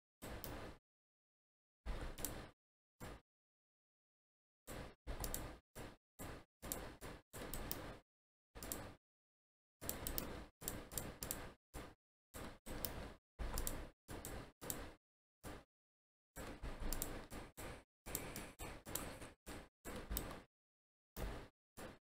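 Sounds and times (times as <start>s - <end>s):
mouse and keyboard clicks: 5.2s - 5.6s, 6.2s - 8.0s, 9.8s - 11.5s, 12.4s - 15.0s, 16.4s - 17.4s, 18.1s - 19.3s, 19.9s - 20.4s.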